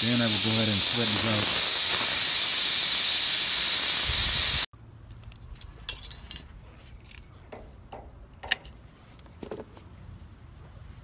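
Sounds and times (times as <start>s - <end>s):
pressurised gas hissing: 0.0s - 4.7s
hand tools clinking on metal: 5.2s - 7.2s.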